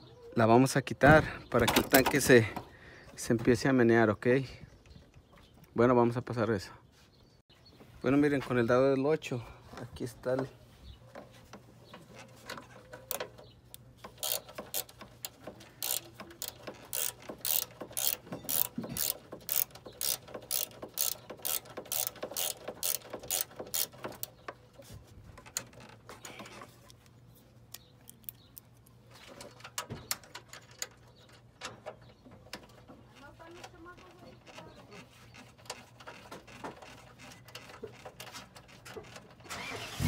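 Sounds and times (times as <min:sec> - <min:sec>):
socket ratchet clicking: 0:13.7 - 0:24.3.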